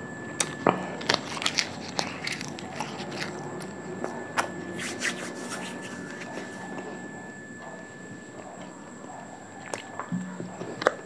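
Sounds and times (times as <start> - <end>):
chewing crunchy leaves: 0.4 - 7.0, 8.4 - 11.0.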